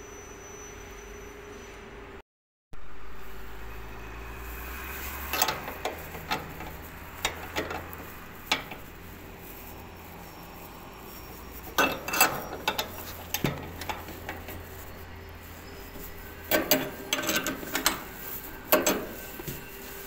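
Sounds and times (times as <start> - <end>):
hand tools clinking on metal: 5.1 - 20.0.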